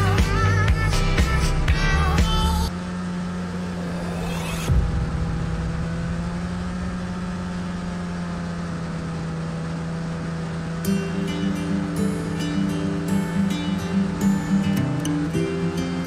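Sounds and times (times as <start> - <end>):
music: 0.0 - 2.7, 10.8 - 16.0
snowmobile engine droning: 0.0 - 16.0.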